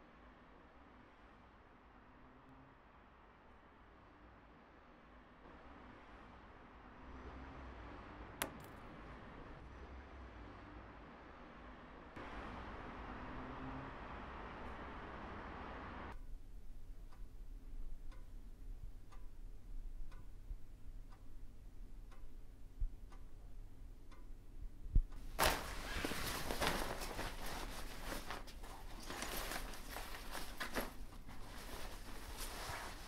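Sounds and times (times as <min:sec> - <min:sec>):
clock ticking faintly: 0:16.1 - 0:25.4
fabric scraping: 0:25.4 - 0:33.0
rucksack rustling and handling: 0:25.4 - 0:33.0.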